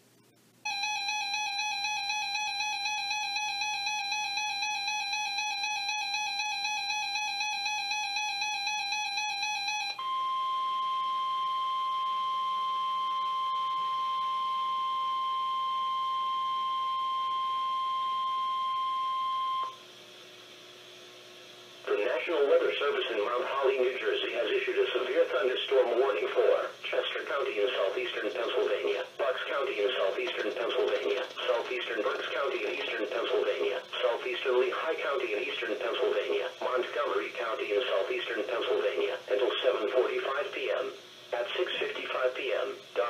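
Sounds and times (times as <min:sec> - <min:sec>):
steady warning tone: 0:00.7 - 0:19.8
warbling electronic alert siren: 0:00.7 - 0:19.8.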